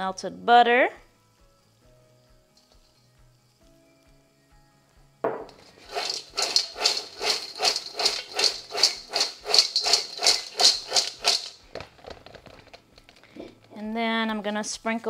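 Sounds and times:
popcorn tossed in a metal bowl: 0:05.5 - 0:12.8.

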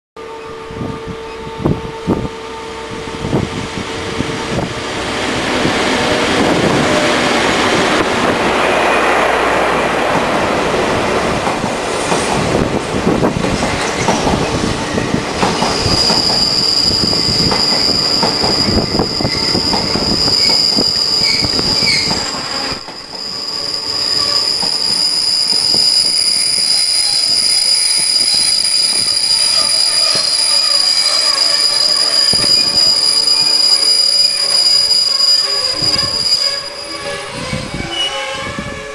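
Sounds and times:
train wheels rumbling on rails: 0:00.8 - 0:38.9
wheels and brakes squealing: 0:15.6 - 0:38.6.

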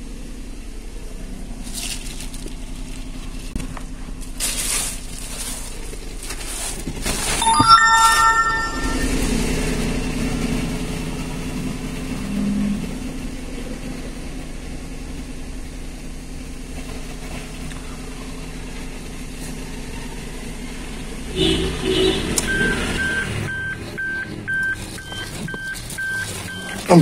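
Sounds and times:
car engine idling: 0:00.0 - 0:07.3, 0:09.1 - 0:27.0
car warning chime beeping: 0:07.4 - 0:09.4, 0:22.4 - 0:27.0.

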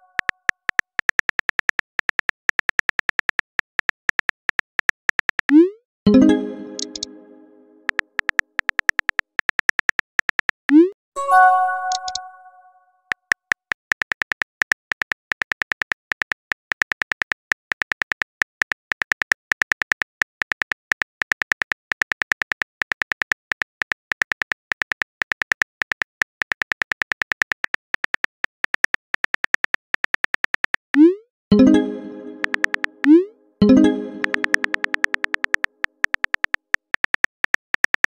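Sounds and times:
keyboard tap clicks: 0:06.7 - 0:07.1, 0:11.8 - 0:12.3, 0:32.2 - 0:33.2, 0:33.9 - 0:38.0.

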